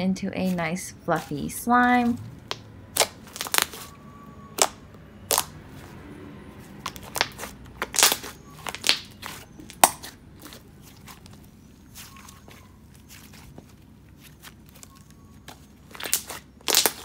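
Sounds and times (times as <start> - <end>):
slime popping and crackling: 2.4 - 3.9, 4.6 - 5.5, 6.9 - 11.2, 15.9 - 17.0.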